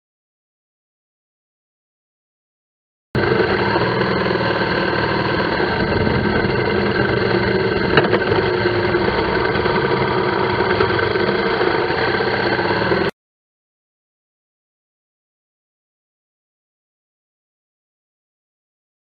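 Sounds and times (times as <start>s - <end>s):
motorcycle engine running: 3.2s - 13.1s.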